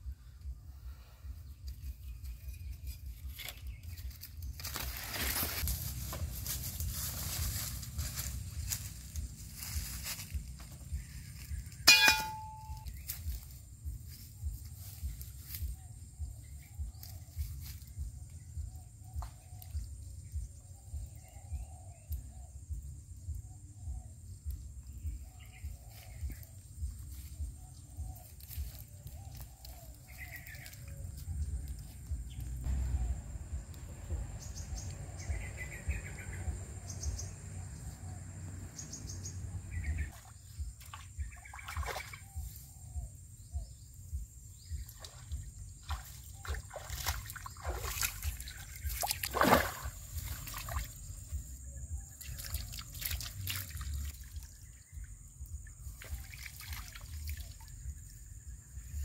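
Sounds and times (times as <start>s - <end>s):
rustling through grass and leaves: 1.5s - 20.4s, 25.0s - 38.2s, 38.8s - 59.0s
faint bird chirps: 38.8s - 59.0s
water trickling and splashing: 40.0s - 42.3s, 44.8s - 51.4s, 52.1s - 57.9s.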